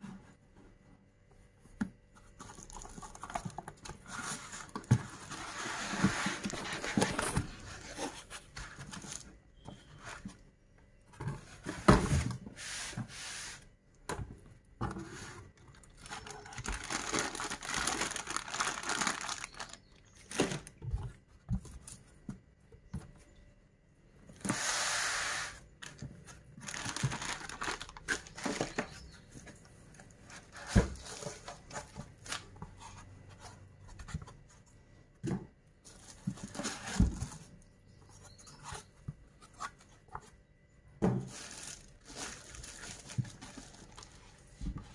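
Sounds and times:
foam and plastic wrap crinkling: 0:02.3 - 0:10.3, 0:15.0 - 0:21.0, 0:25.8 - 0:33.5, 0:35.8 - 0:37.6, 0:41.2 - 0:44.9.

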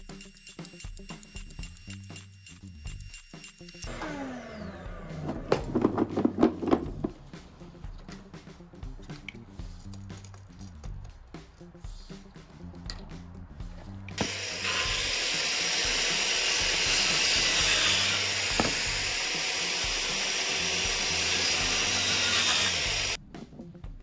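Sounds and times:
machine motor whining: 0:03.7 - 0:05.9, 0:14.2 - 0:23.2.

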